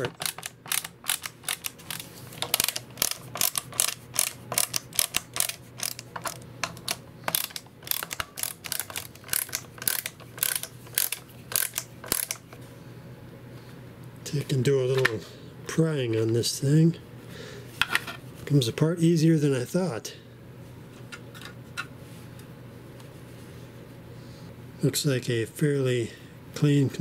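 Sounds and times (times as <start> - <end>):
screwdriver clicking: 0.0 - 12.4.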